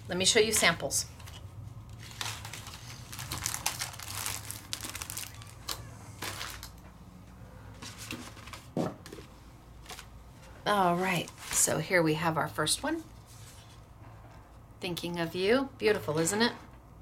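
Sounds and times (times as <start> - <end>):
paper cards rustling and crinkling: 0.6 - 6.9, 7.8 - 11.8.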